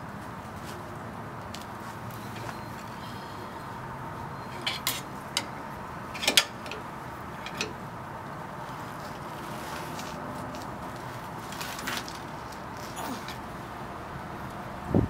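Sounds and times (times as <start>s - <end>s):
metal tool clinking on metal bracket: 4.5s - 6.8s, 7.4s - 7.8s.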